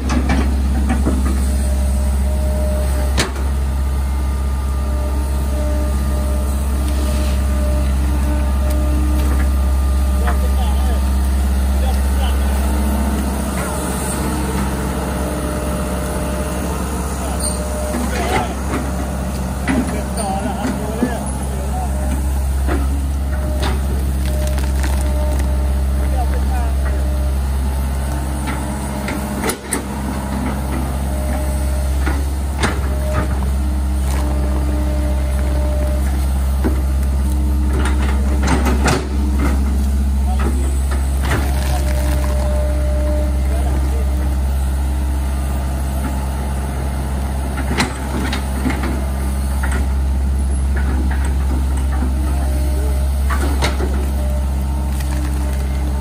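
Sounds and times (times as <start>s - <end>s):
excavator bucket knocking and scraping: 0.0s - 1.5s
excavator diesel engine running: 0.0s - 56.0s.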